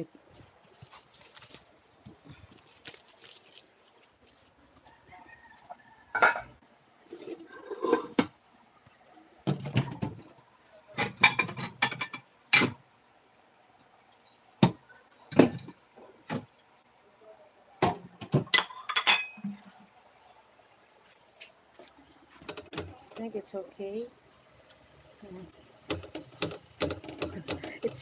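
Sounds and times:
kitchen utensils knocking and clinking: 11.0s - 12.8s, 17.8s - 19.5s, 25.8s - 28.0s.

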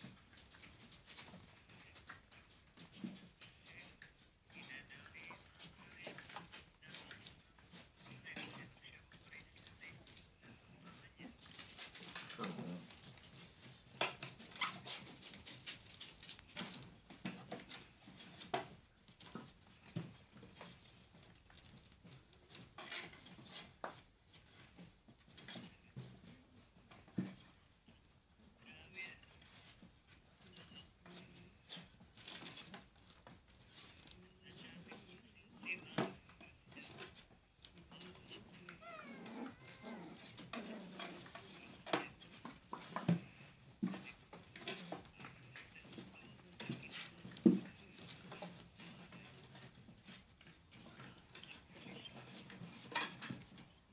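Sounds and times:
paws scratching and shuffling: 0.0s - 53.9s
puppies squeaking and whining: 37.9s - 41.8s
puppy squeak: 38.8s - 40.2s.

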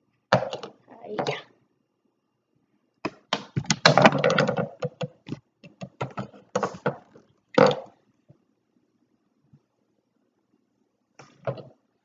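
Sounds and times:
plastic bricks clicking on table: 3.1s - 8.0s.

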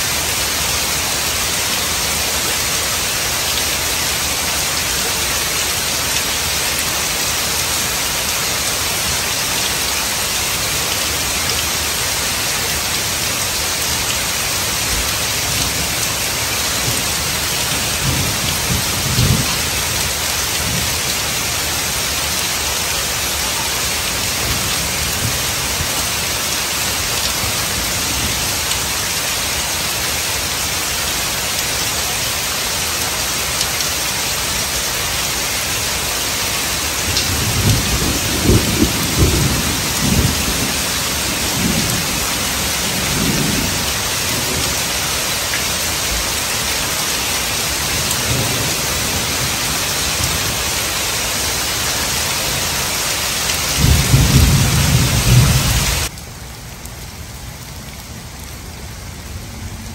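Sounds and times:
heavy rain on pavement: 0.0s - 59.9s
low rolling thunder: 37.2s - 44.8s, 53.8s - 56.1s.

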